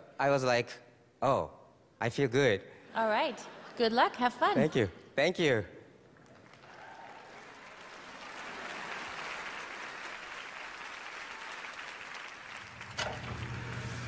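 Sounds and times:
audience applauding: 6.2 - 14.0.

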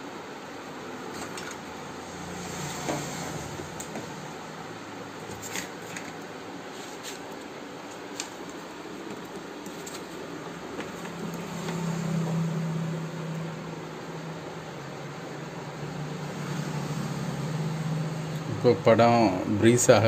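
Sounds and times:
low hum: 10.4 - 18.6.

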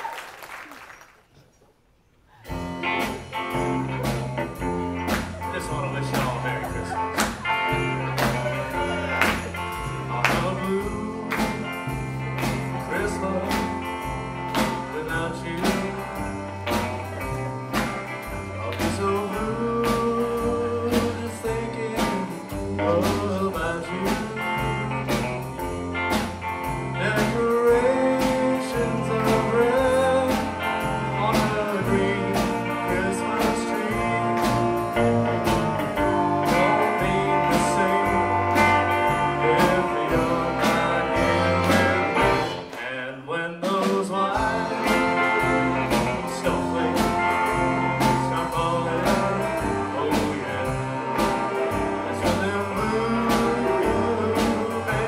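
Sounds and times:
drums: 0.0 - 55.0
electric guitars: 2.4 - 42.9, 44.3 - 55.0
upright bass: 2.5 - 42.8, 43.7 - 55.0
saxophone and trombone: 27.5 - 42.8, 44.4 - 55.0.

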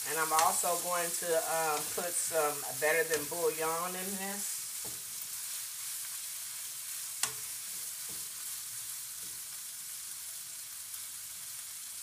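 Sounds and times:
food sizzling in a skillet: 0.0 - 12.0
spatula clicking against pan: 7.2 - 7.5.

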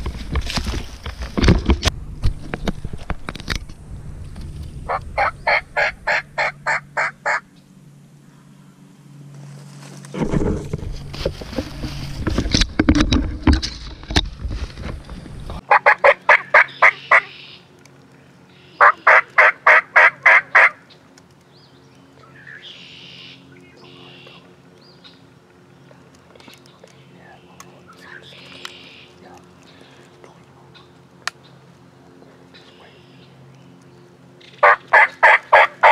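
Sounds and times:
rustling rumble with clicks: 0.0 - 7.0, 9.2 - 15.7
turkey yelps: 4.9 - 7.4, 15.7 - 17.6, 18.8 - 20.8, 34.6 - 35.9.

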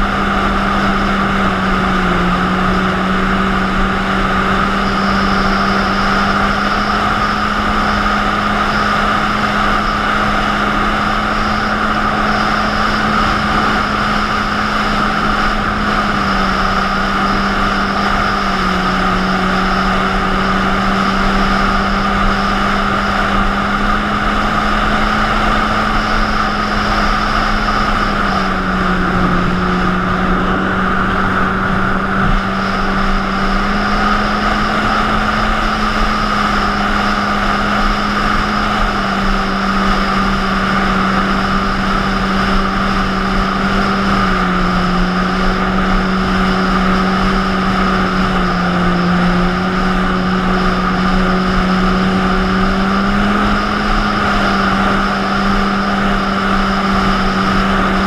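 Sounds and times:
jet ski engine droning: 0.0 - 58.0
wind and water rushing: 20.4 - 58.0.

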